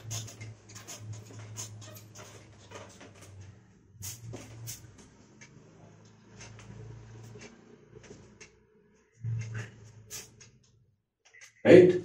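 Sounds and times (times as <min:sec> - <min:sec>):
duster rubbing on whiteboard: 0:00.0 - 0:03.4.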